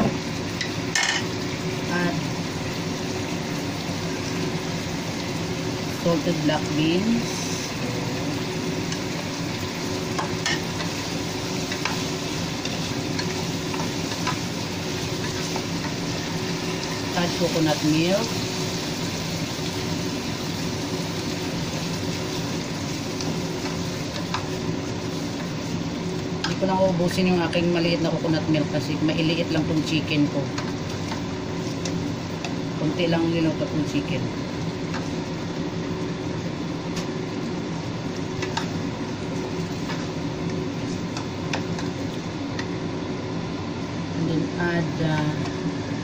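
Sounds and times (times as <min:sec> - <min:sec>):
chicken sizzling in a pan: 0:00.0 - 0:46.0
steady low hum: 0:00.0 - 0:46.0
spatula stirring food in wok: 0:08.7 - 0:17.2, 0:18.4 - 0:26.6.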